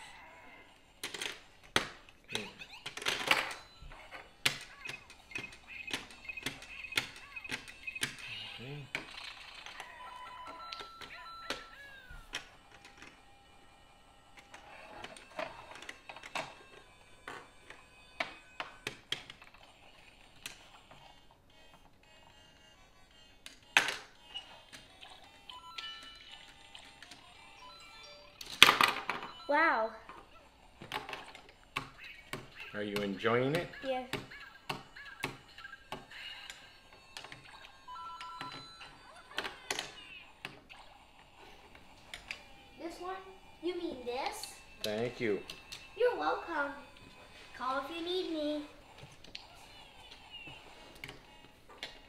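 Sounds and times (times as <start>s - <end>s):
two-tone electronic beeping: 36.9s - 39.0s.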